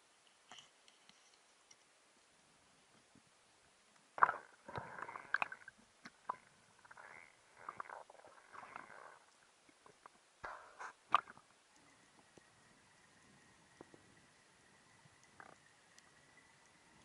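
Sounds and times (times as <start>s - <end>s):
underwater clicks and knocks: 4.2s - 6.5s.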